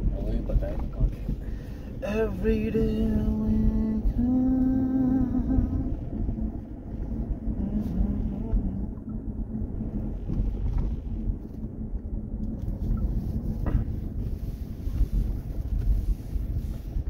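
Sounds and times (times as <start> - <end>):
car engine and tyre rumble: 0.0 - 17.0.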